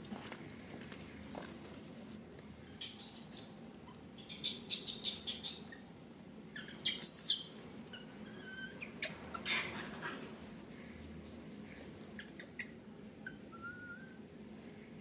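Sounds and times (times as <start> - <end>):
monkeys squeaking: 2.7 - 5.9, 6.5 - 10.2, 12.2 - 14.1
shrill monkey squeal: 2.8 - 3.5, 6.5 - 9.7.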